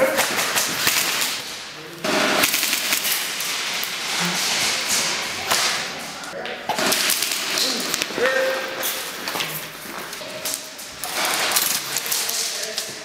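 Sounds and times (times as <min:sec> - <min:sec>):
airsoft gunfire cracks: 0:02.0 - 0:03.7, 0:06.7 - 0:08.1.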